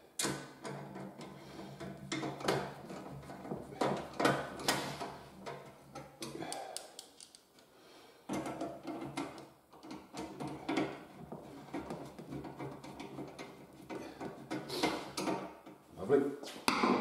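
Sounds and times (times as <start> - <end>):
screwdriver and bolts clicking: 5.4 - 7.6.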